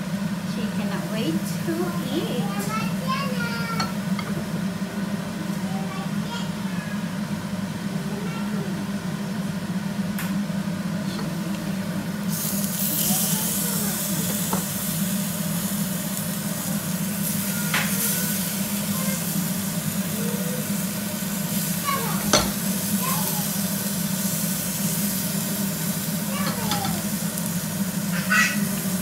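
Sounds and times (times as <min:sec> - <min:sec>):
steady low hum: 0:00.0 - 0:29.0
fish sizzling in a frying pan: 0:12.2 - 0:29.0.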